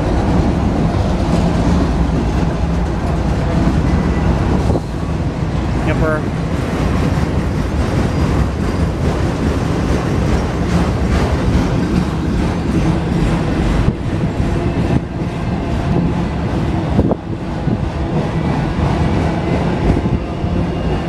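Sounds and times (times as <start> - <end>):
train wheels on rails: 0.0 - 21.0.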